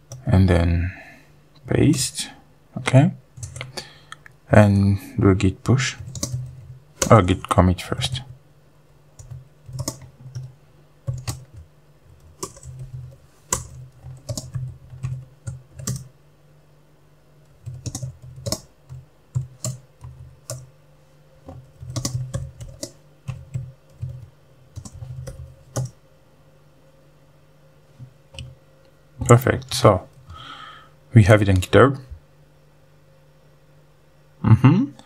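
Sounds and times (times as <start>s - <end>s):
typing on computer keyboard: 3.4s - 3.7s, 6.0s - 7.1s, 9.2s - 10.5s, 11.1s - 16.1s, 17.5s - 20.7s, 21.4s - 26.0s.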